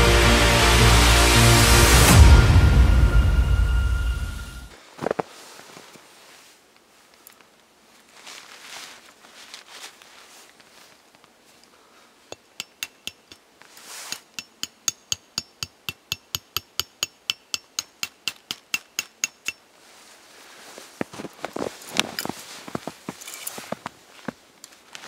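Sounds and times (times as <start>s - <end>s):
rustling and handling: 4.7s - 14.9s, 18.4s - 25.0s
hatchet tapping metal stake: 12.3s - 19.7s.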